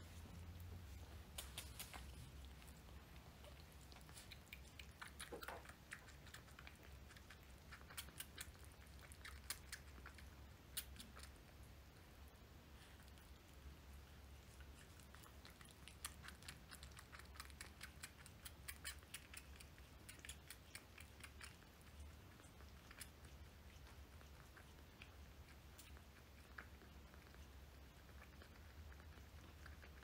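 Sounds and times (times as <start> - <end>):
kitten sucking from syringe: 0.2 - 30.0.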